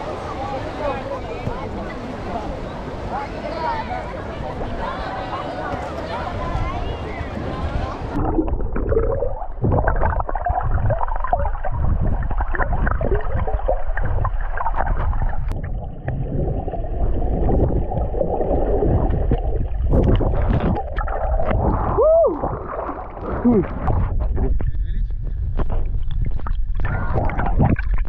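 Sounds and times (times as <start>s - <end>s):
bubbles: 8.1s - 24.8s, 25.6s - 28.0s
water gurgling underwater: 8.1s - 28.0s
underwater knocks: 8.2s - 24.8s.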